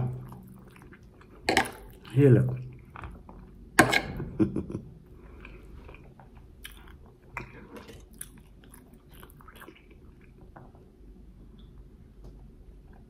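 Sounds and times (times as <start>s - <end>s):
person chewing food: 0.0s - 3.7s, 5.1s - 10.9s
wet chewing with clicks: 5.4s - 10.8s.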